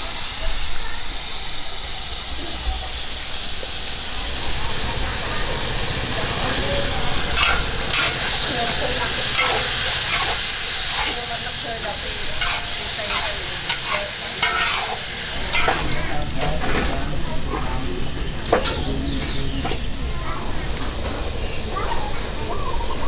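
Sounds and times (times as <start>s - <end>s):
food sizzling in oil: 0.0s - 19.9s
metal spatula scraping wok: 7.4s - 17.0s.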